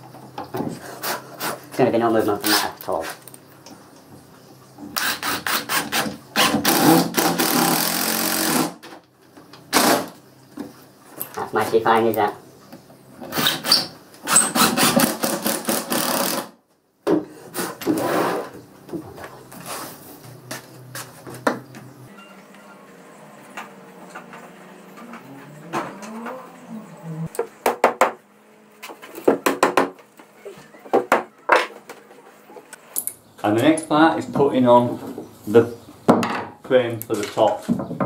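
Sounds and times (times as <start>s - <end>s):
cordless drill driving screws: 13.3s - 16.5s.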